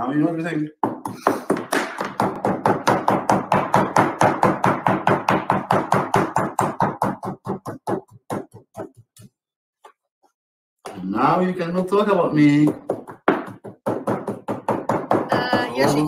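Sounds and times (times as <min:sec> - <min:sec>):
knife chopping on cutting board: 0:00.8 - 0:09.3, 0:12.7 - 0:16.0.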